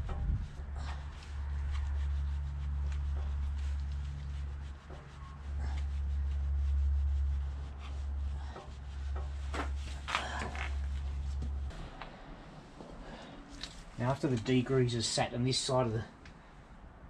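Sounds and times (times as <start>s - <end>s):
cloth scrubbing a drive chain: 0.0s - 11.7s
steady low rumble: 0.0s - 17.0s.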